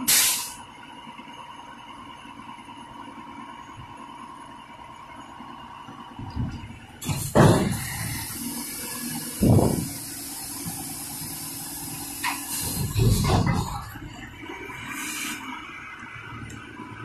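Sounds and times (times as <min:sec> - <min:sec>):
long air hiss: 0:00.0 - 0:00.6, 0:07.8 - 0:13.0, 0:14.8 - 0:15.4.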